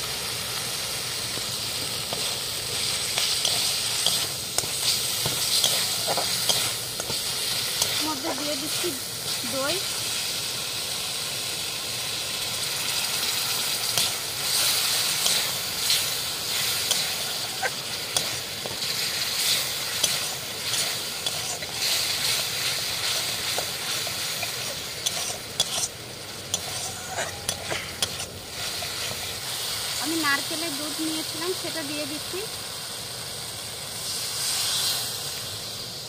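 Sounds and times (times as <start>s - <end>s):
masala sizzling in oil: 0.0s - 36.0s
metal spatula scraping a pan: 2.0s - 8.8s, 13.8s - 29.3s.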